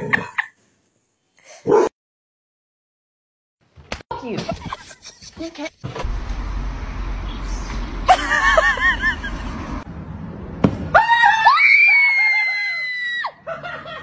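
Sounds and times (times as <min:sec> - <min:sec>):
thump: 0:10.6 - 0:10.9
long high-pitched scream: 0:11.0 - 0:13.4.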